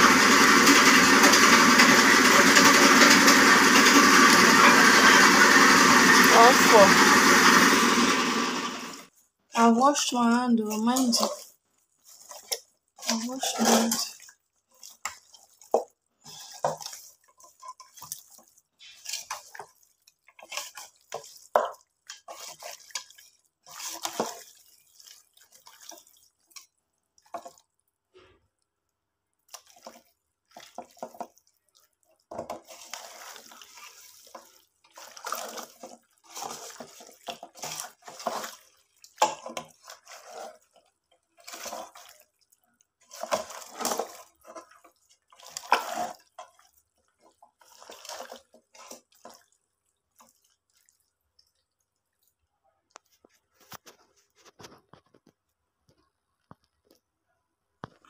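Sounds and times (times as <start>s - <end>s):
hands squelching raw chicken: 10.6s - 27.9s, 29.4s - 52.4s.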